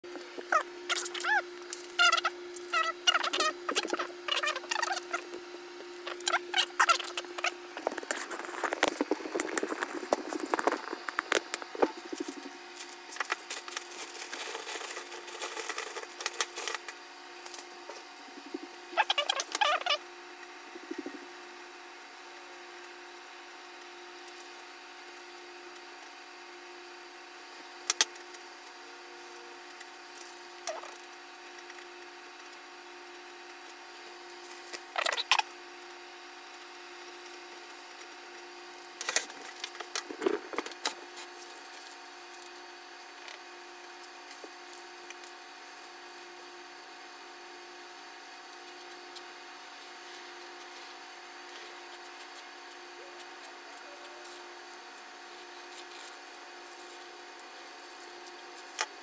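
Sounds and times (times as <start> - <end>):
faint hum: 0.1 - 59.0.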